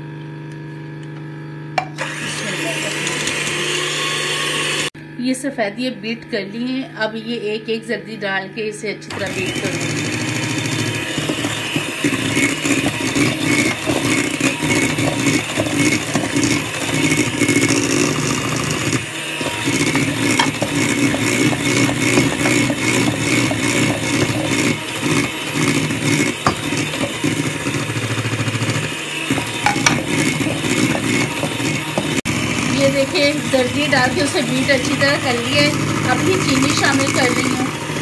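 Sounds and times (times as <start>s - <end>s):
electric hand mixer whirring: 0.0s - 38.0s
beaters scraping a steel bowl: 9.0s - 38.0s.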